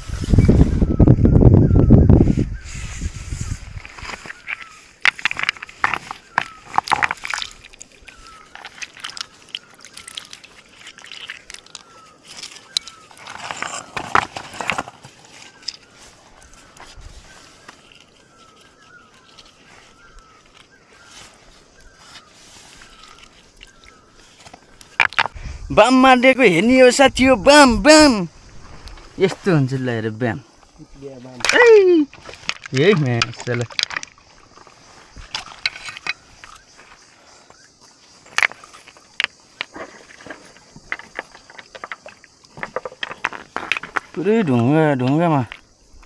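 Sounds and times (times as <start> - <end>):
bird calling: 0.0 - 25.4, 33.6 - 44.4
stones knocking in water: 4.5 - 15.0, 24.9 - 25.4, 31.4 - 36.2.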